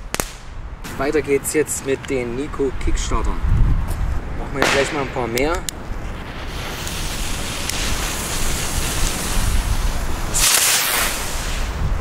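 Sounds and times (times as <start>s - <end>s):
wind rumbling on microphone: 0.0s - 12.0s
fireworks fountain hissing: 4.6s - 12.0s.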